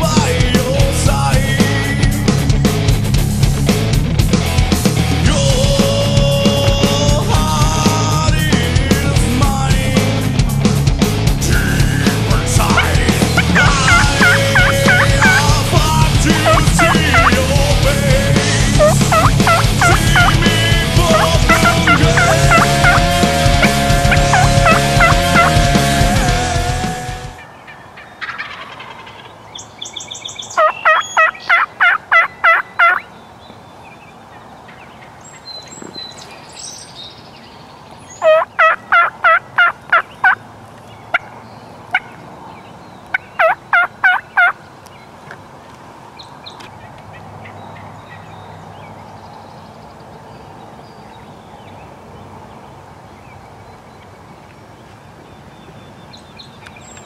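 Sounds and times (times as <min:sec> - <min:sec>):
wild turkey calling: 0:11.4 - 0:26.3, 0:27.4 - 0:37.0, 0:37.9 - 0:48.9.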